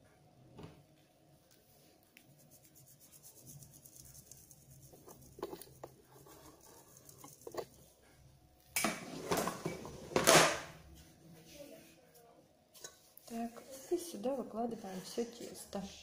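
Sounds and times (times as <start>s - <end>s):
flour sieve patter: 1.6s - 7.9s.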